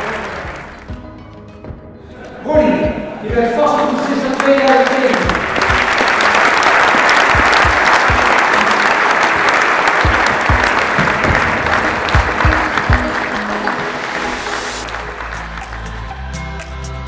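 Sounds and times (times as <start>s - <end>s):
audience applauding: 0.0s - 1.0s, 3.6s - 16.9s
music playing: 0.0s - 17.0s.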